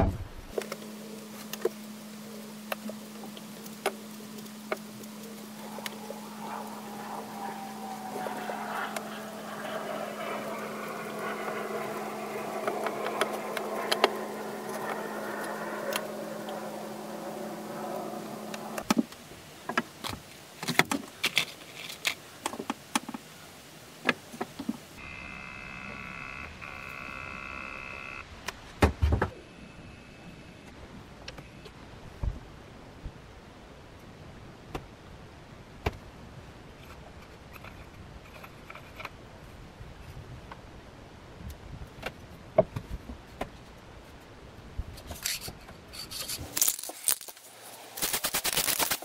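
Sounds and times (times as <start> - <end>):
steady hum: 0.0 - 19.6, 24.8 - 28.4, 29.3 - 34.0
steady high whine: 0.4 - 19.2, 24.9 - 28.4, 29.3 - 32.0.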